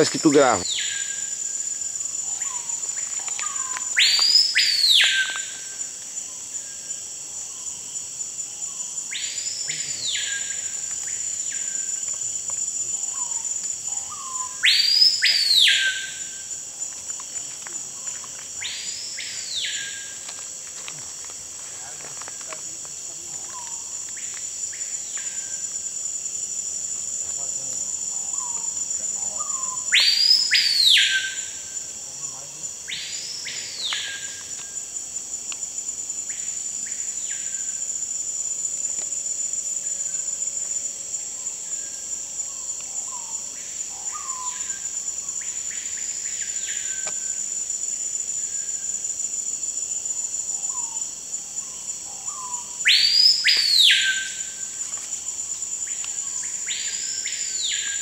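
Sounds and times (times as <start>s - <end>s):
high-pitched insect drone: 0.0s - 58.0s
bird whistling loud calls: 29.4s - 31.4s, 52.8s - 54.4s.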